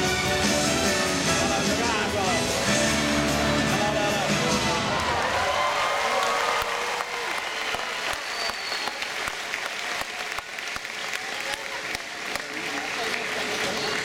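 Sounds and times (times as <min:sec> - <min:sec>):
crowd applauding: 0:03.1 - 0:14.0.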